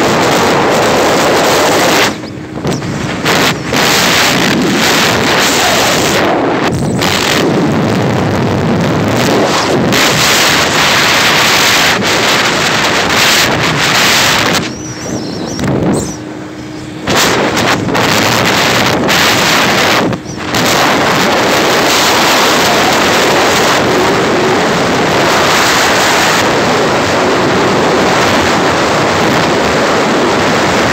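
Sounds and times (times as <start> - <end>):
road and engine noise: 0.0 - 30.9
wind rushing over microphone: 0.0 - 30.9.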